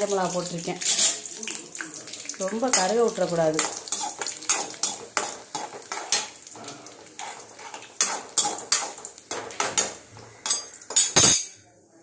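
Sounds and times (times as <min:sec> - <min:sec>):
faint frying sizzle: 0:00.0 - 0:11.3
metal ladle scraping a pan: 0:00.8 - 0:01.3, 0:02.7 - 0:11.5.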